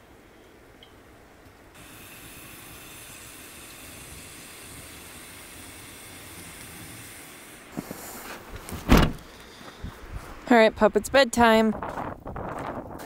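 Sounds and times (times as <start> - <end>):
air hissing through coffee grounds: 1.8 - 8.5.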